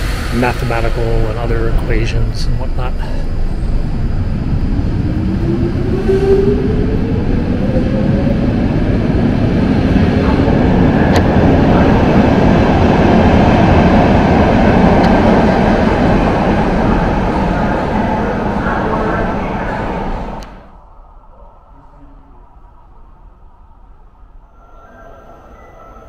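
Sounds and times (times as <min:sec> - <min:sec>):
metro train motor whine: 0:00.0 - 0:20.8, 0:21.8 - 0:26.0
train track noise: 0:00.0 - 0:20.8.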